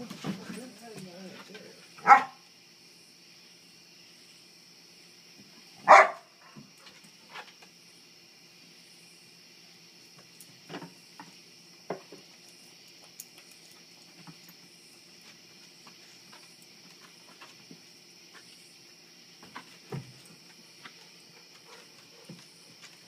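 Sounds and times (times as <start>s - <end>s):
crickets chirring: 0.0s - 23.0s.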